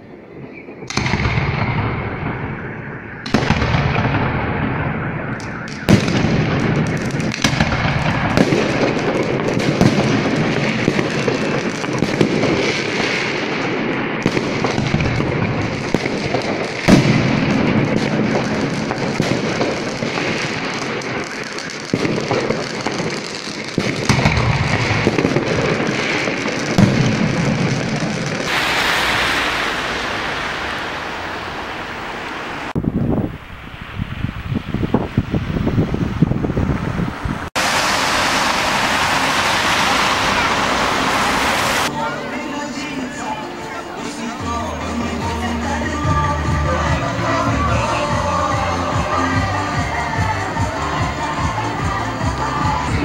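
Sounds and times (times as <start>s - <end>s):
crackle and rumble of fireworks: 0.0s - 53.0s
firework bangs: 0.6s - 41.9s.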